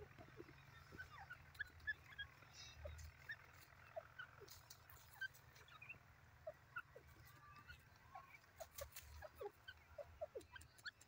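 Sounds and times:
bird chirps and peeps: 0.0 - 11.0
soft ticks: 8.7 - 11.0.

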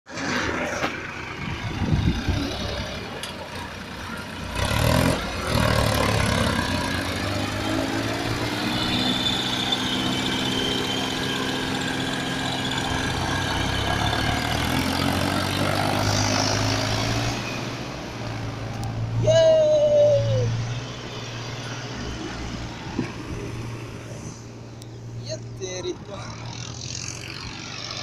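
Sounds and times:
tractor diesel engine under load: 0.1 - 19.2.

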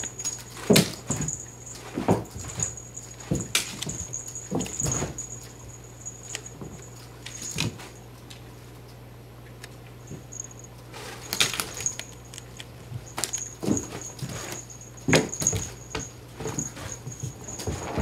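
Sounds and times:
faint thin high jingle: 0.0 - 8.0, 10.1 - 12.4, 13.0 - 18.0
cats thumping on carpet: 0.3 - 5.5, 12.9 - 18.0.

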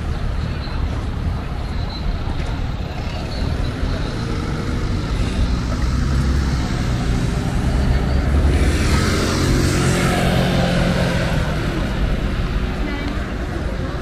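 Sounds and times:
street traffic: 0.0 - 14.0
motor scooter passing: 3.0 - 13.3.

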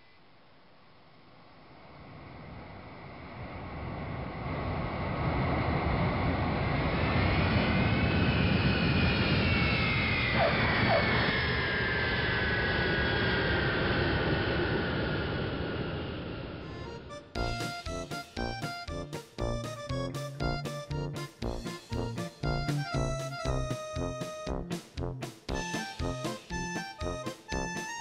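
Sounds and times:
airliner jet engines: 1.6 - 18.9
whine rising and falling: 1.7 - 18.8.

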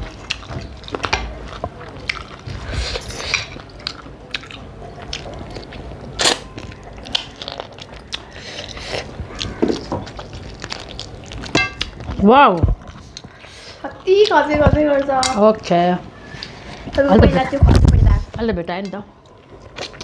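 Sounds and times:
chewing and lip smacks: 0.0 - 12.2.

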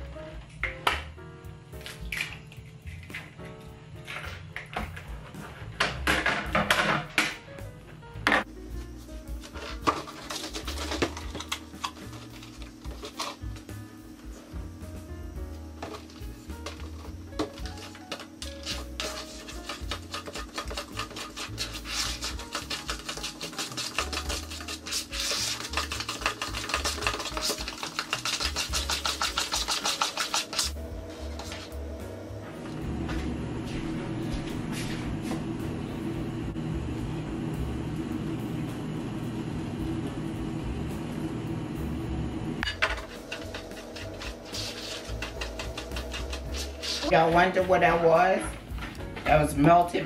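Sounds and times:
background music with bass: 0.0 - 20.2
utensil scraping mixing bowl: 9.6 - 13.4, 17.5 - 31.8, 42.6 - 48.6
microwave oven humming: 30.8 - 47.5.

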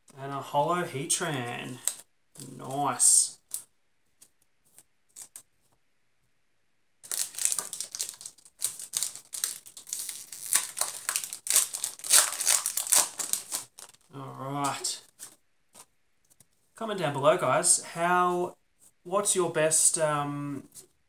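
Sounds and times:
foil wrapper crinkling: 7.0 - 14.1.

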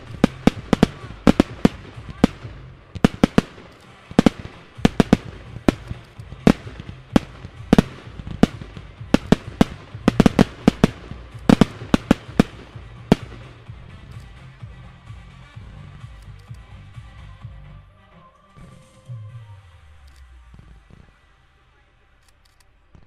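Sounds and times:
fireworks banging: 0.0 - 14.2.

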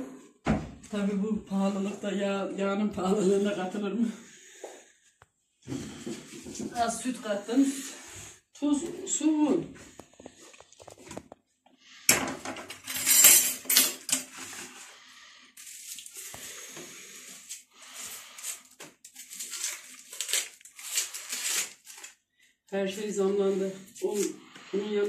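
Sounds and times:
kitchen utensils and dishes clattering: 12.1 - 14.8
knife scraping food on paper: 15.6 - 22.2.

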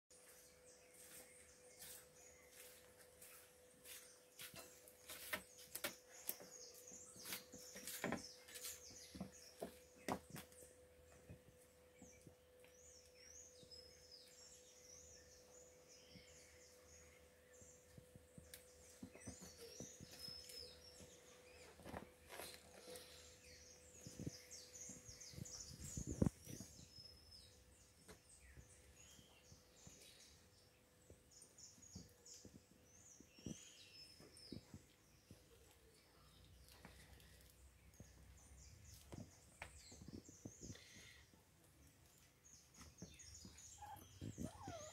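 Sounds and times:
faint birdsong chirps: 0.1 - 44.9
kittens thumping and scuffing on rug: 1.0 - 10.6, 18.0 - 23.1.

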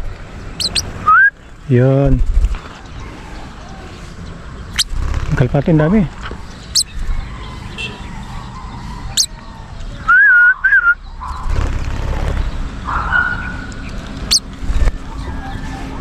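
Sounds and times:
bird chirps: 0.6 - 1.3, 2.9 - 5.0, 6.4 - 11.6.

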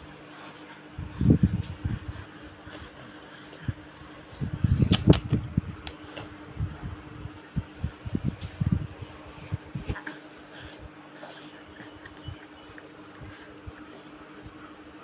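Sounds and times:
low fan hum: 0.0 - 15.0
sharp click: 4.9 - 6.0.

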